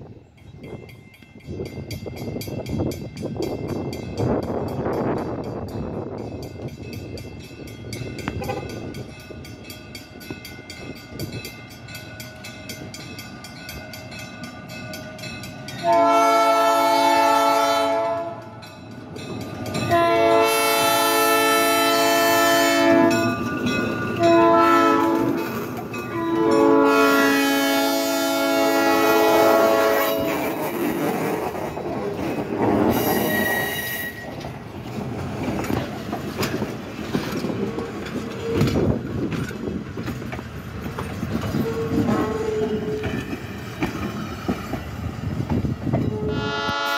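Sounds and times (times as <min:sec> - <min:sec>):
train air horn blasts: 0:08.4 - 0:08.8, 0:15.8 - 0:18.6, 0:19.8 - 0:23.3, 0:24.2 - 0:25.5, 0:26.1 - 0:30.4, 0:41.5 - 0:43.0, 0:46.0 - 0:46.9.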